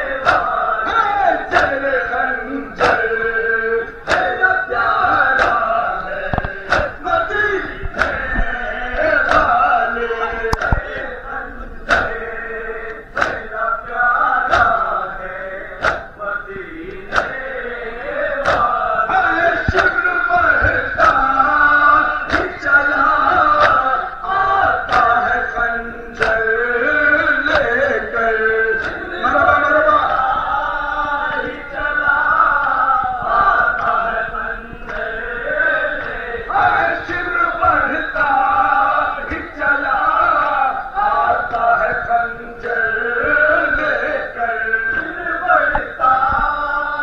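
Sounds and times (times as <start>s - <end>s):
men chanting a lament: 0.0s - 47.0s
hands slapping chests: 0.2s - 0.6s, 1.5s - 1.9s, 2.8s - 3.1s, 4.0s - 7.0s, 7.6s - 8.5s, 9.2s - 9.6s, 10.5s - 11.1s, 11.9s - 12.2s, 12.9s - 13.6s, 14.4s - 14.9s, 15.7s - 16.1s, 16.9s - 17.5s, 18.3s - 18.8s, 19.5s - 24.0s, 24.8s - 25.4s, 26.2s - 26.4s, 27.4s - 28.0s, 28.8s - 29.1s.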